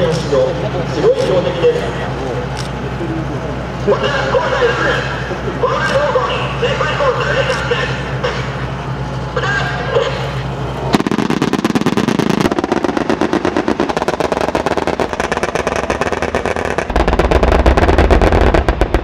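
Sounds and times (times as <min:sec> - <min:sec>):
steady low hum: 0:00.0 - 0:19.0
cannons firing rapid bursts: 0:11.0 - 0:19.0.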